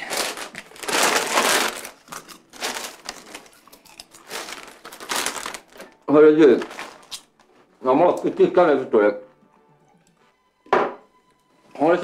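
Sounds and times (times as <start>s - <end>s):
paper rustling and crinkling: 0.0s - 8.5s.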